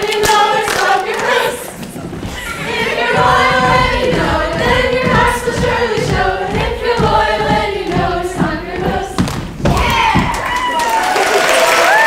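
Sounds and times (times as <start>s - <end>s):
young voices singing in chorus: 0.0s - 10.6s.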